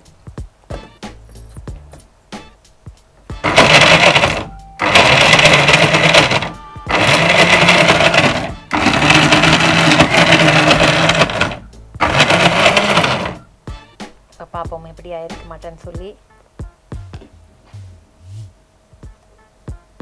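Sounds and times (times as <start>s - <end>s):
mixer grinder grinding: 3.4s - 13.5s.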